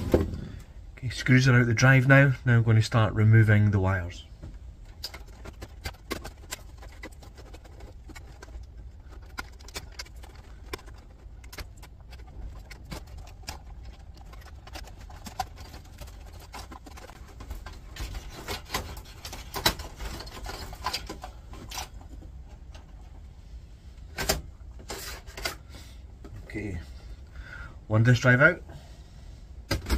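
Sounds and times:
low steady hum: 0.0 - 29.9
connectors clicking and rattling: 4.3 - 26.5.

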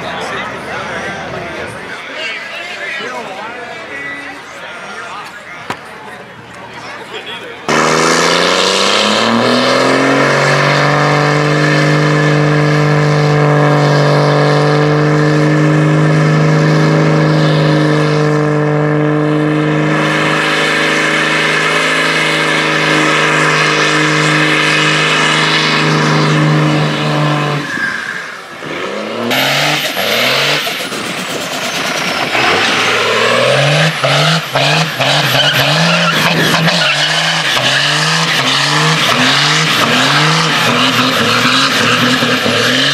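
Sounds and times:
diesel engine at high revs: 7.3 - 42.9.

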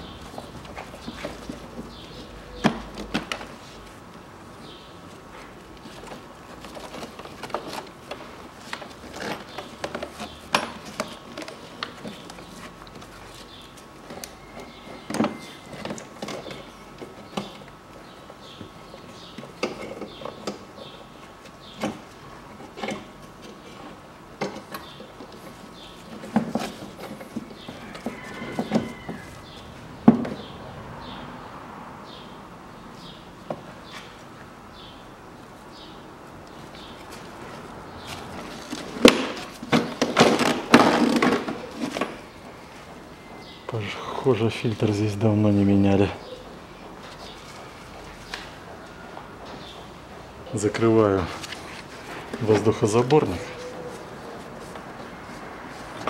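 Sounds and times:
heavier plastic knocks: 38.6 - 42.1.

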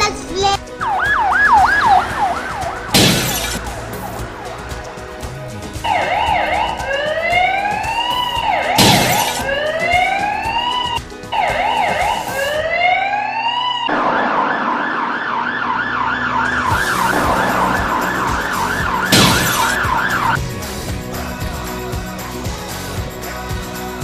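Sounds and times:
toy electronic siren: 0.8 - 3.6, 5.9 - 20.4.

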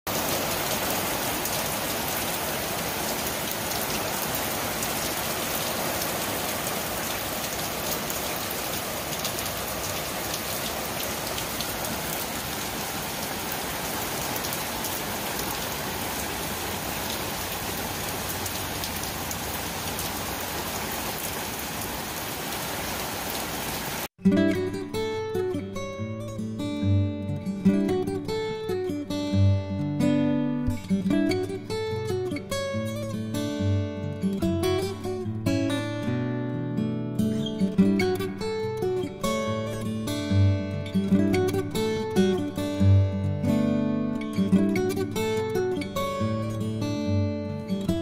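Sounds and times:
raindrops ticking on wood: 0.1 - 22.1
rain hissing: 0.1 - 24.1.

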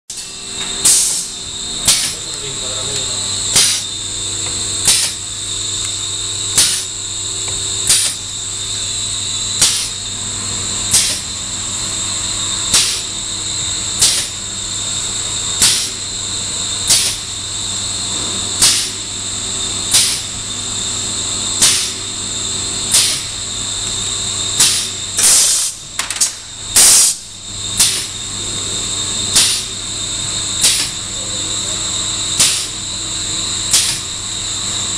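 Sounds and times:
motor hum and high whine: 0.1 - 34.9
loud hissing bursts: 0.8 - 4.2, 4.8 - 7.2, 7.8 - 8.4, 9.2 - 10.0, 10.9 - 11.3, 12.7 - 13.1, 15.6 - 16.0, 24.6 - 27.2, 30.6 - 30.9.

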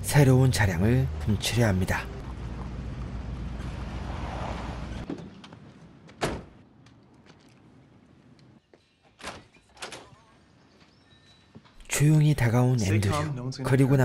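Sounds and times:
loud door thunk: 6.2 - 6.6.

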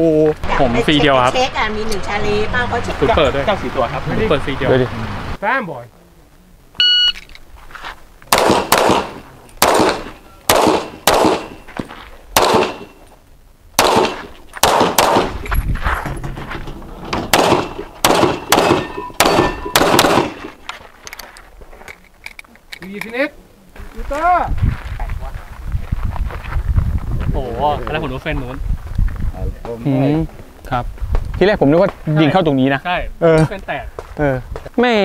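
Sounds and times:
shot timer beep: 6.8 - 7.2
handgun shots: 8.3 - 11.6, 12.4 - 13.0, 13.8 - 15.4, 17.3 - 20.5.

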